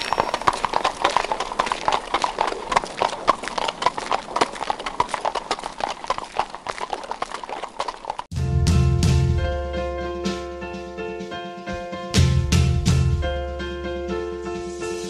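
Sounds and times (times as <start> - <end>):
horse hooves on asphalt: 0.0 - 8.3.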